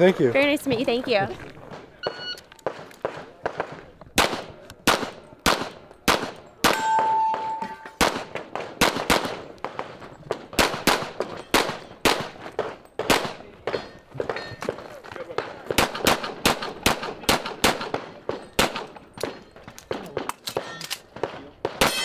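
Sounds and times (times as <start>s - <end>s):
pistol shots: 2.6s - 14.4s, 15.4s - 22.0s
steel targets ringing: 6.6s - 8.0s.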